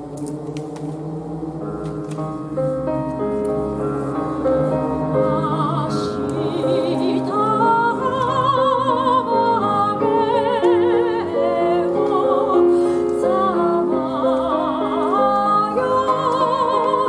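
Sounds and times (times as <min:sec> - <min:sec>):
grand piano playing: 0:00.0 - 0:17.0
soprano singing with vibrato: 0:05.1 - 0:17.0.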